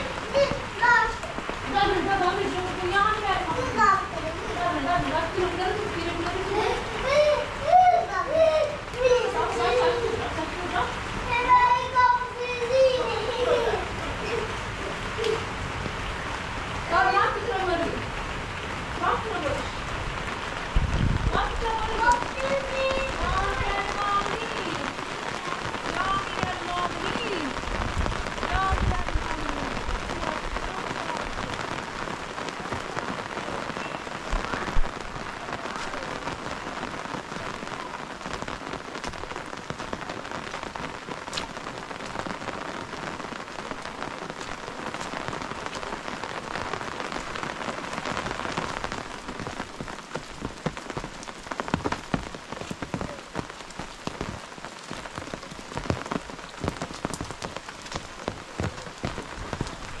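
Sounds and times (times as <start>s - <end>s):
raindrops ticking: 0.0s - 60.0s
steady rain falling: 0.0s - 60.0s.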